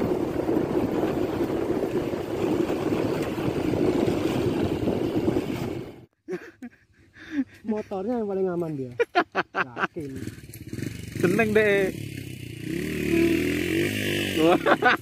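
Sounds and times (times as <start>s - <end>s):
motorcycle engine: 0.0s - 6.1s, 9.8s - 15.0s
wind on microphone: 0.0s - 6.1s.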